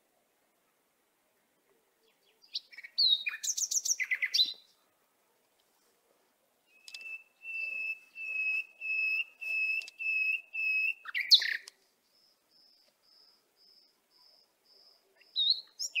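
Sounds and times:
sharp bird chirp: 0:02.4 - 0:04.6, 0:06.7 - 0:16.0
bird whistling notes: 0:06.7 - 0:11.6.

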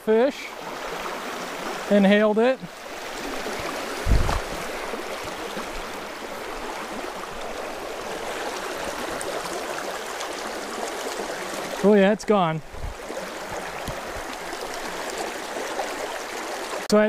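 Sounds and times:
stream running over rocks: 0:00.0 - 0:17.0
dull low thump: 0:04.0 - 0:04.6.

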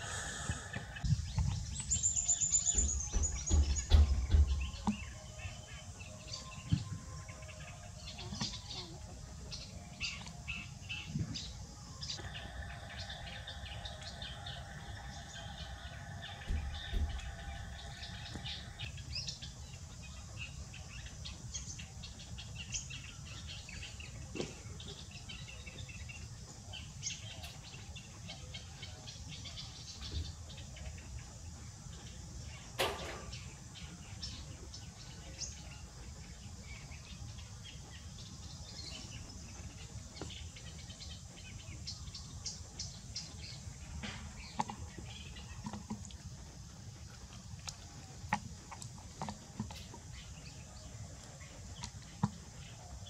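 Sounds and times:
birds chirping: 0:00.0 - 0:53.0
low background rumble: 0:12.2 - 0:20.5.

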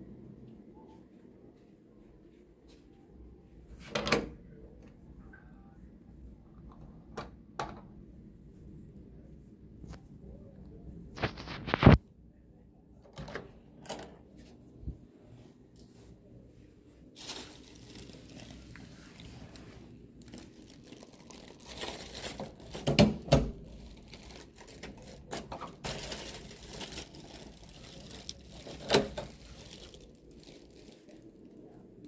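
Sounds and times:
plastic bag crinkling: 0:17.2 - 0:31.8.

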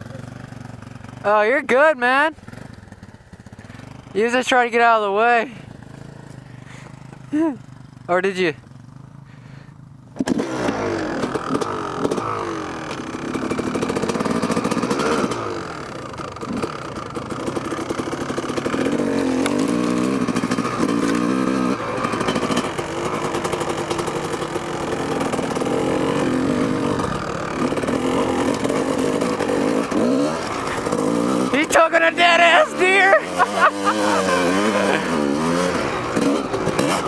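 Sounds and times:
dirt bike engine revving: 0:00.0 - 0:37.0.

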